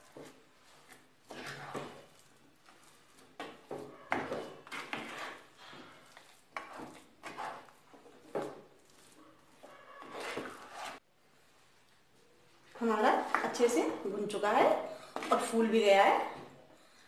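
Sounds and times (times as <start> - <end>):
spatula scraping dough in steel pan: 0.0 - 11.0.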